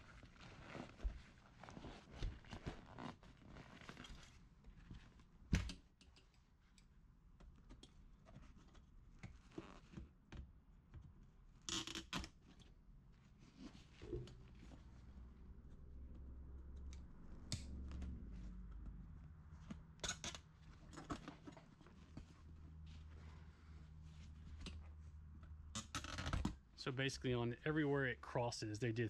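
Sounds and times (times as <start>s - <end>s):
vinyl cover and foam rustling: 0.0s - 5.2s.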